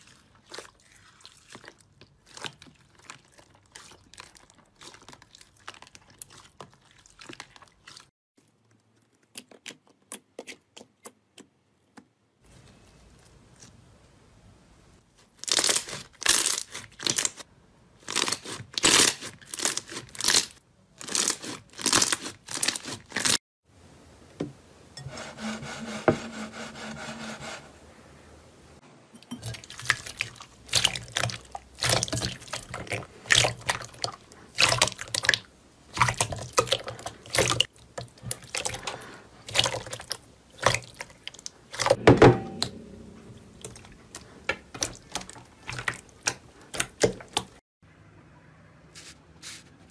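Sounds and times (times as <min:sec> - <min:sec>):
slime squelching and popping: 0:29.4 - 0:47.6.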